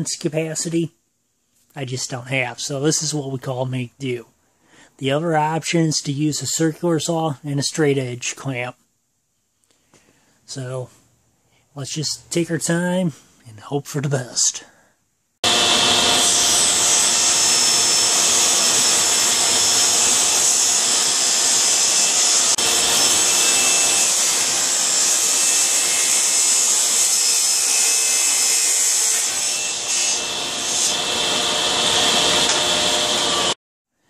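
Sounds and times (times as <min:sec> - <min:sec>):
table saw cutting sheet stock: 0:15.4 - 0:33.6.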